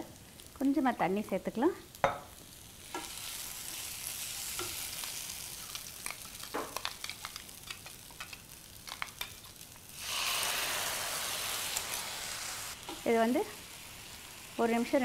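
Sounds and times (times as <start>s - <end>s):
food sizzling in oil: 0.0s - 15.0s
water poured into hot pan: 10.0s - 12.8s.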